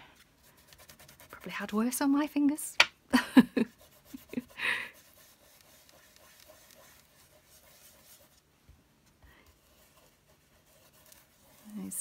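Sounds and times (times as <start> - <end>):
fingertips rubbing wax: 3.7 - 8.5, 9.3 - 12.0.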